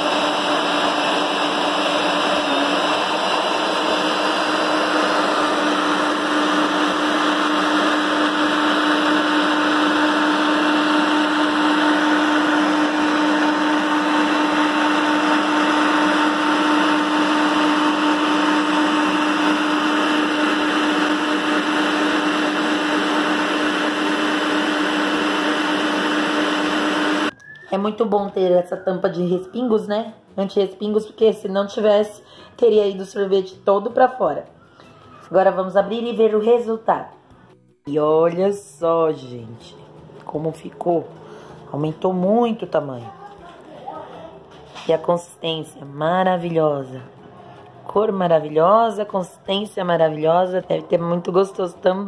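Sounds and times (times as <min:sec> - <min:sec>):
stand mixer motor hum: 0:00.0 - 0:27.4.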